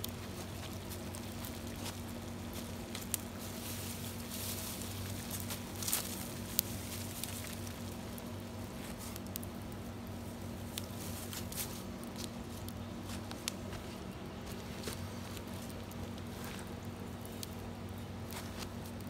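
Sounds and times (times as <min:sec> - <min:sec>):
steady low hum: 0:00.0 - 0:19.0
wood fire crackling: 0:00.0 - 0:19.0.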